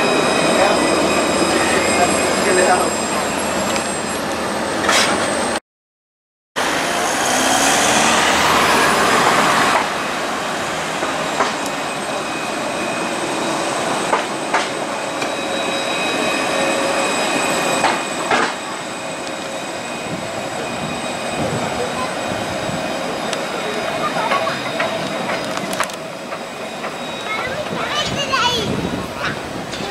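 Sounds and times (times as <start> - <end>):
tram whine: 0.0 - 5.6, 6.6 - 29.9
car passing: 6.6 - 11.0.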